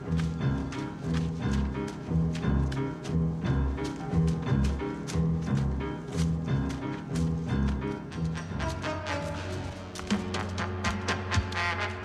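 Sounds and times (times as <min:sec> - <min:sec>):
music with driving beat: 0:06.2 - 0:12.0.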